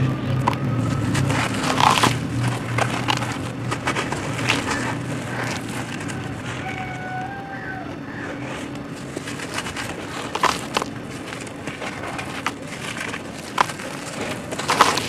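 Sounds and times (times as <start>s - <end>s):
hands crushing dry dirt: 0.0s - 15.0s
steady low hum: 0.0s - 15.0s.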